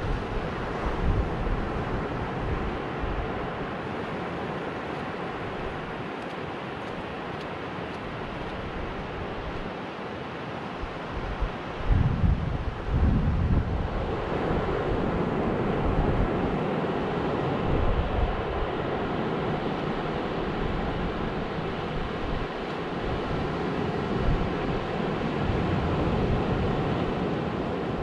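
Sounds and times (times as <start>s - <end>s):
wind on microphone: 0.0s - 7.2s, 10.8s - 28.0s.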